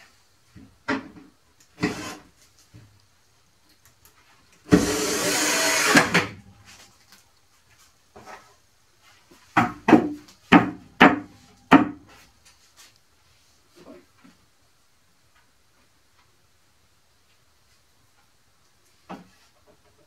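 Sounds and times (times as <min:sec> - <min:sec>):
cordless drill driving screw: 0:04.7 - 0:06.3
knocks on plywood: 0:09.6 - 0:12.0.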